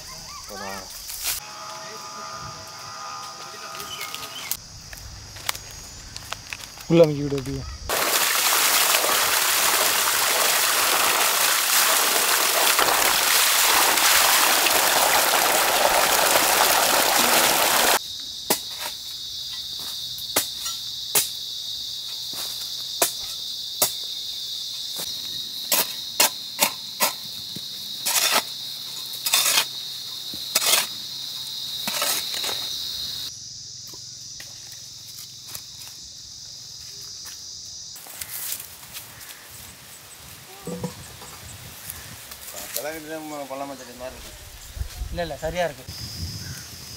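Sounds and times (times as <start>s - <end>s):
high insect drone: 0.0s - 10.3s, 12.2s - 46.9s
water gushing from a pipe: 7.9s - 18.0s.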